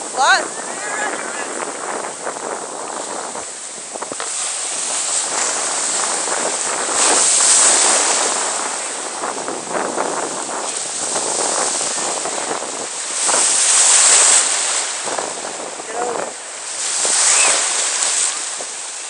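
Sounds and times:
waves breaking: 0:00.0 - 0:19.0.

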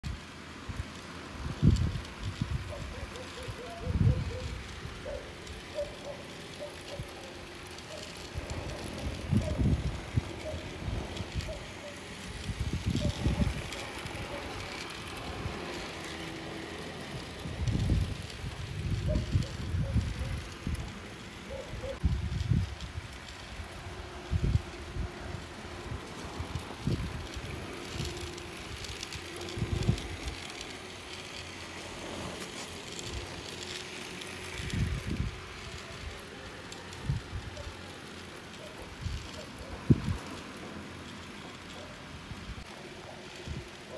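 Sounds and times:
toy train motor whirring: 0:00.0 - 0:43.9
wheels clicking on track: 0:00.0 - 0:43.9
low buffeting rumbles: 0:07.3 - 0:37.6.

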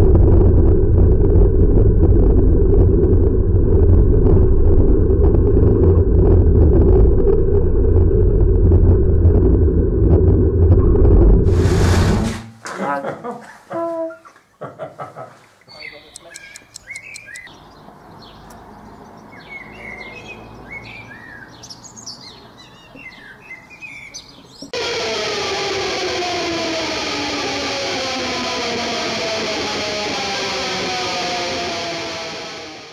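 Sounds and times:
low background rumble: 0:00.0 - 0:12.4
birds chirping: 0:15.4 - 0:24.8
loud guitar-like music: 0:24.8 - 0:32.9.

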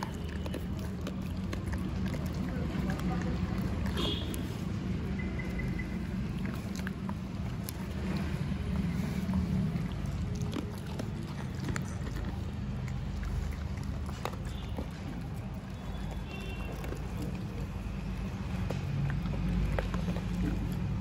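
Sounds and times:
teeth clicking on pellets: 0:00.0 - 0:04.5
puppies chewing dry kibble: 0:00.0 - 0:21.0.

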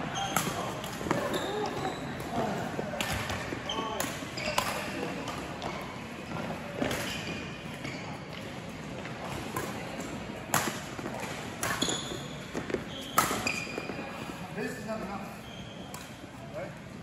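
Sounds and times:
shoes squeaking on court floor: 0:00.1 - 0:09.8, 0:10.9 - 0:16.4
rackets striking shuttlecock: 0:09.3 - 0:13.6.

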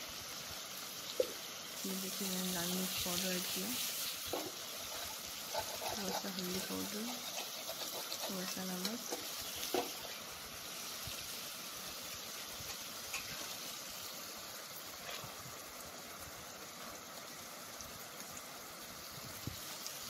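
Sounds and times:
food sizzling in oil: 0:00.0 - 0:20.0
spatula scraping pan: 0:03.1 - 0:10.9, 0:12.1 - 0:13.8.

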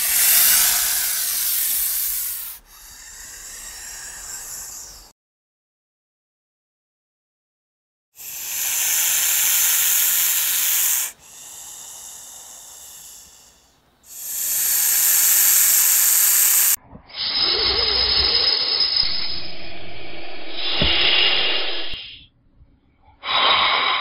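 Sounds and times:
rough breathy hiss: 0:00.0 - 0:05.1, 0:08.2 - 0:22.2, 0:23.2 - 0:24.0
snake hissing: 0:00.0 - 0:05.1, 0:08.2 - 0:22.2, 0:23.2 - 0:24.0
low rumble: 0:19.0 - 0:23.0.

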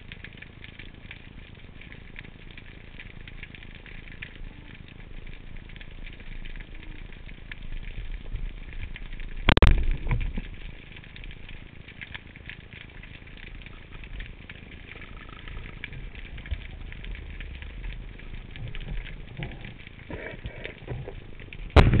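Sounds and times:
sea crackling and ticking: 0:00.0 - 0:22.0
speargun firing underwater: 0:21.8 - 0:22.0.

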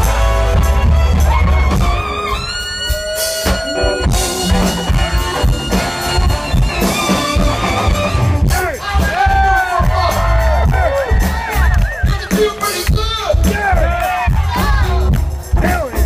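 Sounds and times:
saxophone: 0:00.0 - 0:08.8
drum kit: 0:00.0 - 0:16.0
electric guitars: 0:00.0 - 0:16.0.

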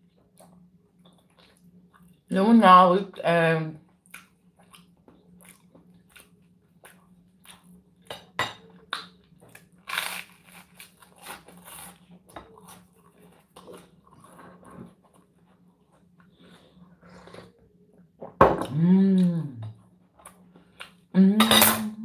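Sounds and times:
faint low hum: 0:00.0 - 0:22.0
crunchy chewing of toast: 0:04.0 - 0:08.1, 0:08.7 - 0:16.9.

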